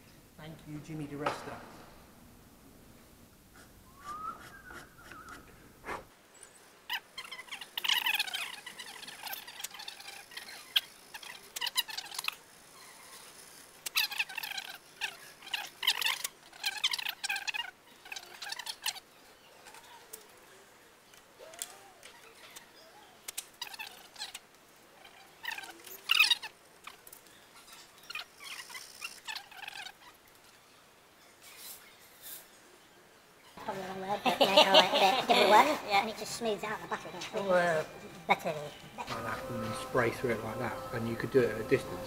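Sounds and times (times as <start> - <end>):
scratchy squeaks of hand rubbing: 3.6 - 6.1, 6.9 - 19.0, 23.6 - 24.4, 27.7 - 30.2.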